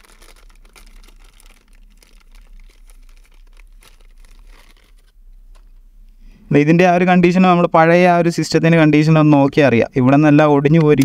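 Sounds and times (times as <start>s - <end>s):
crinkling and rustling: 0.0s - 5.9s.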